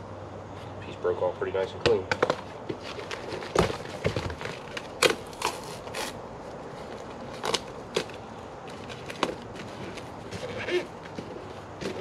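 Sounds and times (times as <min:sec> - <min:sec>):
foam and cardboard cracking: 0:02.2 - 0:06.2.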